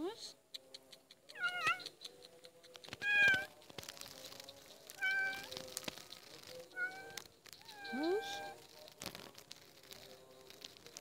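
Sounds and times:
faint clicks: 0.4 - 11.0
cat meowing: 1.3 - 1.9, 3.0 - 3.5, 5.0 - 5.6, 6.7 - 8.6.

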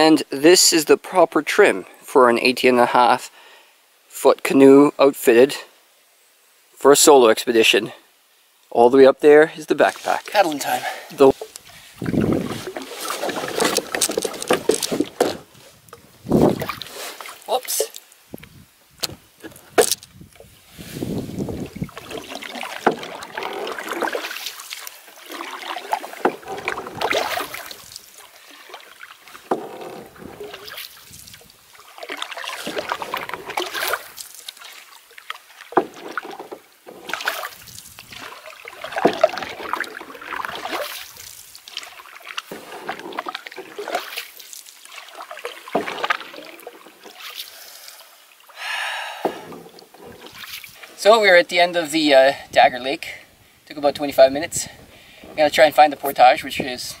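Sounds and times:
paddle splashing water: 9.7 - 18.4, 19.0 - 52.9, 53.8 - 57.0
knocks against canoe: 12.1 - 15.5, 38.1 - 39.7, 45.7 - 46.3, 49.2 - 50.4.

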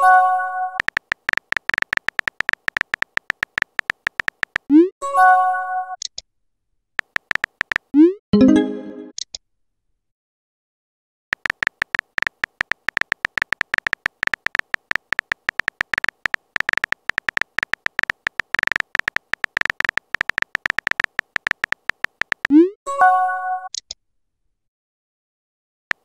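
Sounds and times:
phone keyboard beeping ticks: 0.0 - 4.9, 7.0 - 8.2, 11.3 - 22.8.

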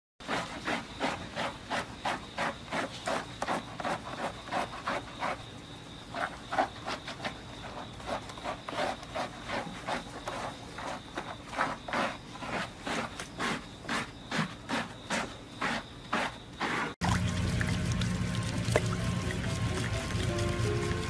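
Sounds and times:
hands scrubbing wet fur: 15.6 - 21.0.

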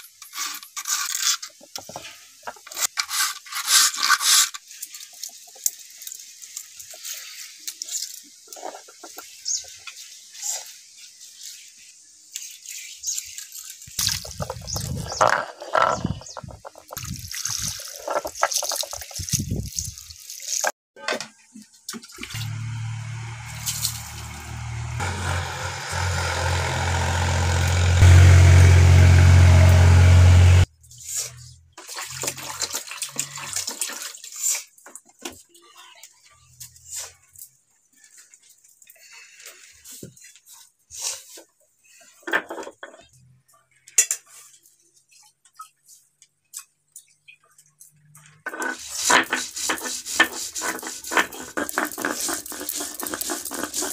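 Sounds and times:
wet hand rubbing on stone: 48.8 - 53.9.

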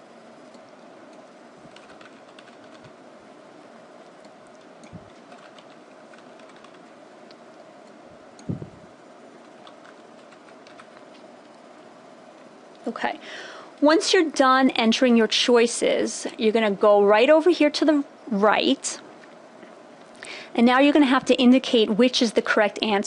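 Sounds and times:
steady background hum: 0.0 - 23.0.

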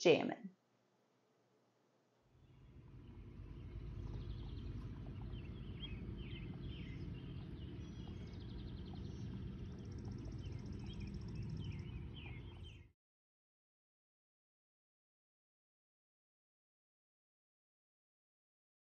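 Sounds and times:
birds chirping: 2.4 - 12.9
low rumble: 2.4 - 12.9.

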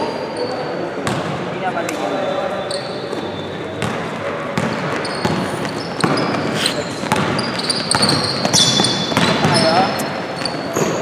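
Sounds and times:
sneakers squeaking: 0.0 - 11.0
basketball dribbling: 3.8 - 11.0.

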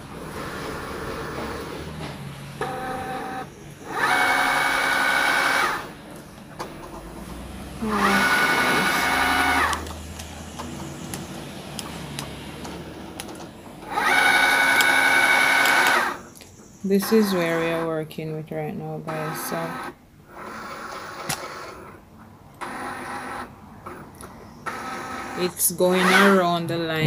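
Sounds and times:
cutting machine motors whining: 0.0 - 16.3.

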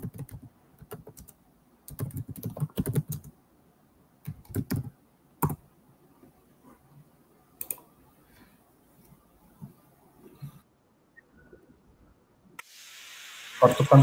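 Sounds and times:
keyboard typing: 0.0 - 3.4, 4.2 - 5.6, 7.6 - 7.9.

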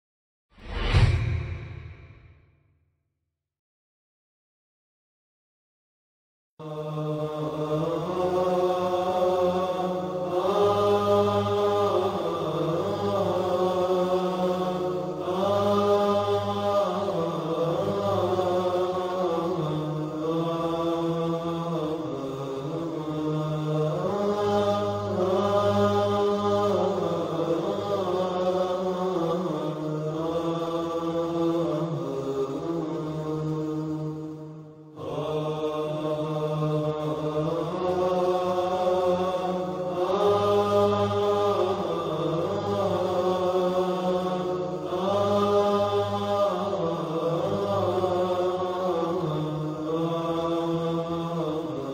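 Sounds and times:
low drone: 0.6 - 2.4
vocal chant of long notes: 6.6 - 51.9.

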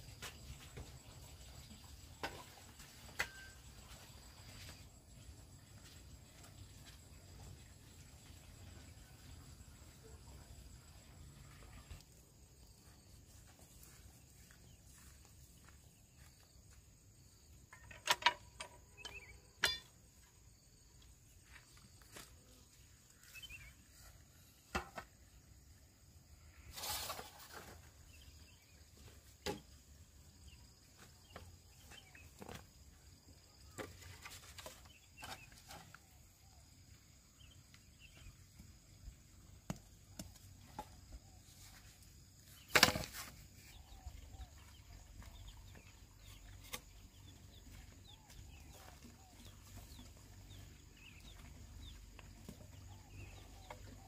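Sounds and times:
bamboo poles knocking: 24.7 - 25.1, 42.7 - 43.3.

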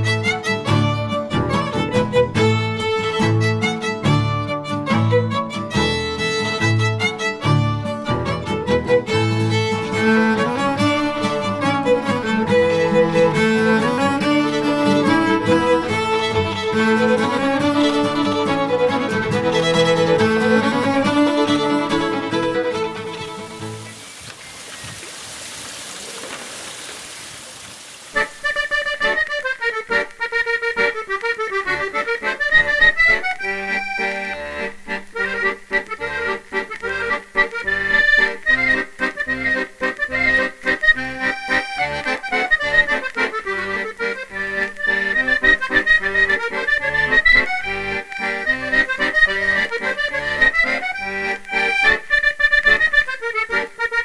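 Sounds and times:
accordion music: 0.0 - 24.2, 28.1 - 54.0
fountain water splashing: 23.0 - 29.1.

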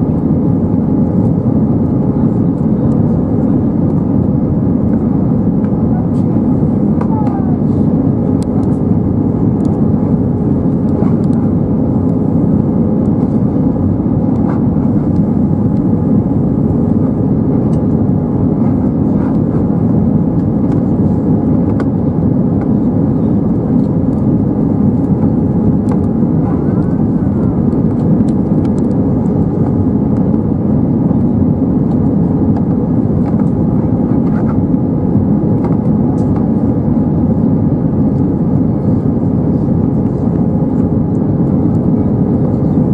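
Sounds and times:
low hum of jet engines: 0.0 - 42.9
rush of air in cabin: 0.0 - 42.9.

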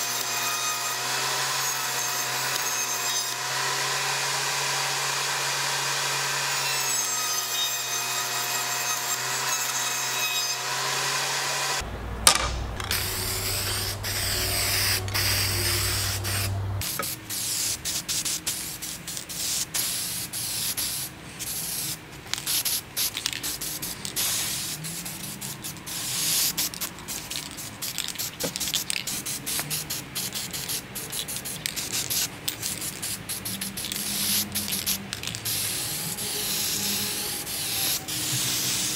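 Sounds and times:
table saw running: 0.0 - 16.9
low hum: 11.8 - 16.8
sharp knock: 12.0 - 16.6
aerosol spray can hissing: 12.8 - 38.9.

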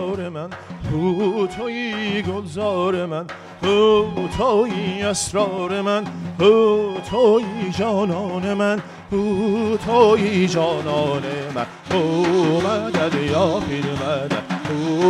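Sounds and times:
frame drum strokes: 0.0 - 15.0
ney flute melody: 0.6 - 15.0.

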